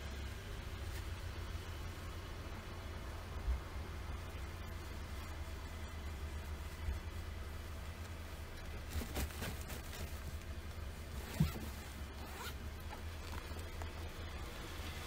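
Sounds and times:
backpack zipper rasping: 11.2 - 12.6.

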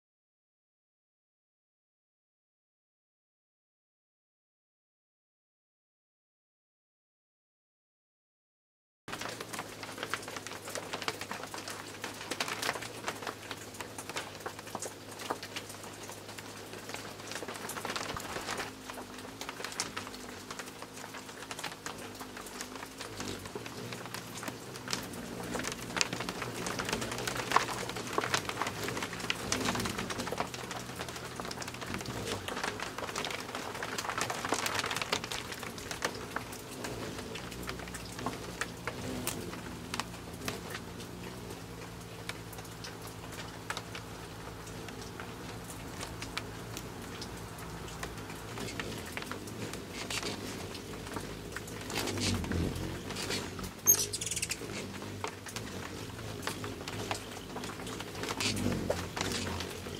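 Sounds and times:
hummingbird wings humming: 9.1 - 59.9
rain pattering and dripping: 9.1 - 59.9.

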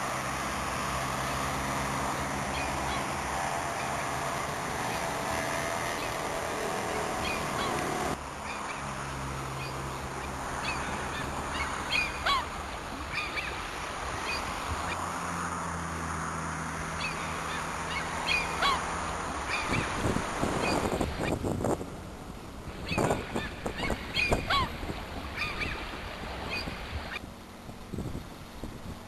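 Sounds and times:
seabirds honking calls: 0.0 - 15.1, 16.6 - 21.4, 22.7 - 27.3.

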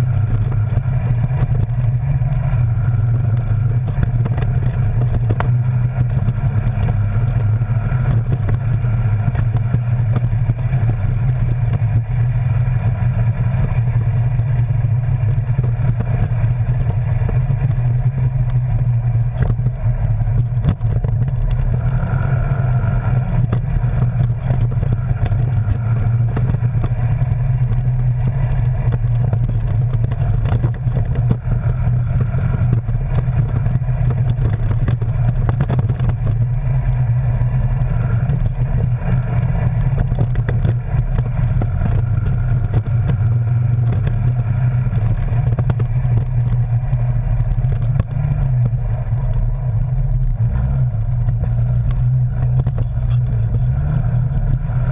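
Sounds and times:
off-road vehicle engine running: 0.0 - 54.9.

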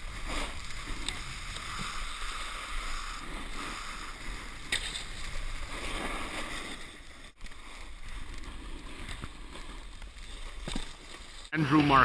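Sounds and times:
snowboard scraping on snow: 0.0 - 11.5.

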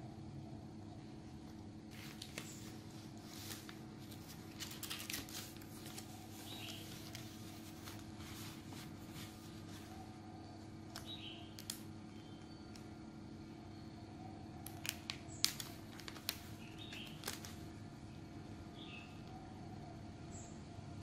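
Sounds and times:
steady low hum: 0.0 - 21.0
paper rustling: 1.9 - 10.1, 14.8 - 17.7.

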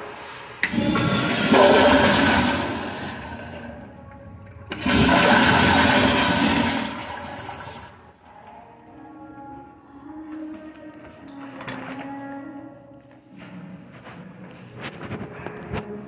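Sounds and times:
toilet flushing: 0.0 - 8.2.

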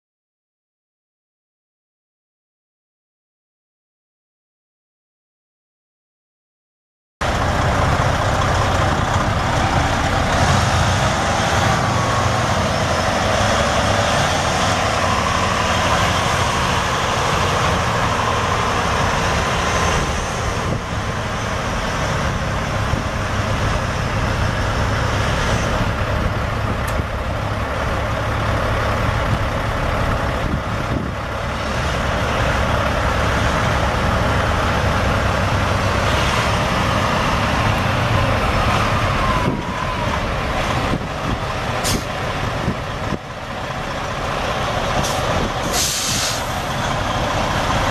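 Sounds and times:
diesel truck engine running: 7.2 - 47.9.

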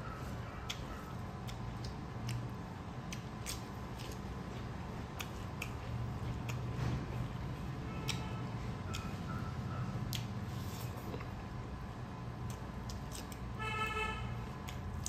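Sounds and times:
steady low hum: 0.0 - 15.0
mouths chewing food: 0.1 - 11.5.

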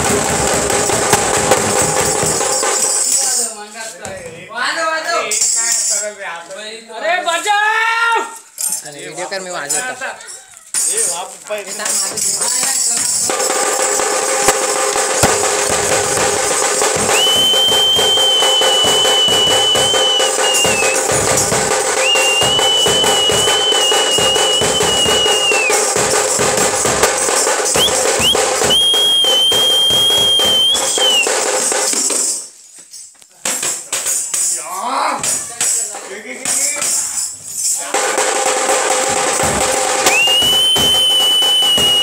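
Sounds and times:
large kettle drum beaten fast: 0.0 - 2.9, 13.2 - 31.5, 37.9 - 42.0
tambourine jingles: 0.6 - 3.6, 8.4 - 42.0
high held whistle-like tone: 17.0 - 21.1, 22.0 - 25.8, 27.8 - 31.4, 40.0 - 42.0.

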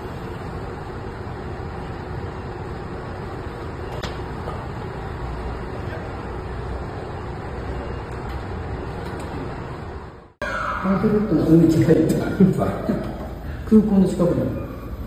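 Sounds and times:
road traffic rumble: 0.0 - 10.4.

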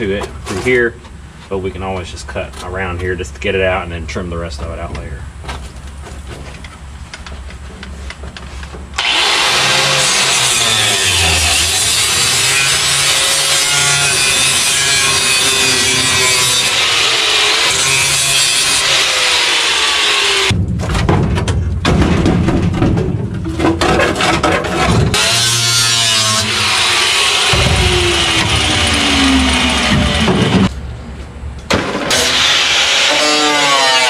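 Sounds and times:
angle grinder cutting metal: 9.0 - 20.5, 25.2 - 30.7, 32.0 - 34.0
knocks and clatter: 20.5 - 25.3, 27.5 - 30.7.

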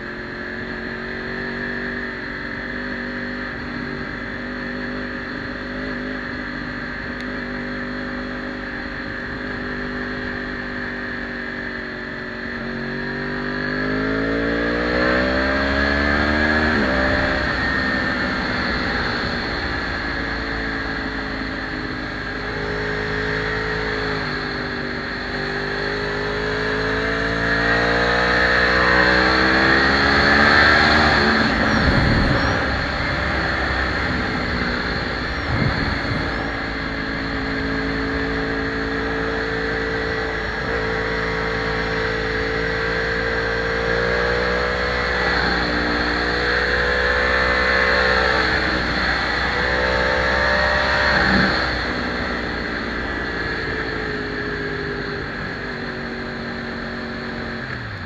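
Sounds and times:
motorcycle engine at speed: 0.0 - 58.0
wind rushing: 29.8 - 38.4.

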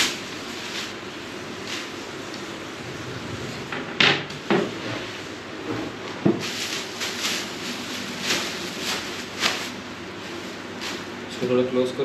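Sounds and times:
plastic packaging rustling: 6.4 - 11.2.

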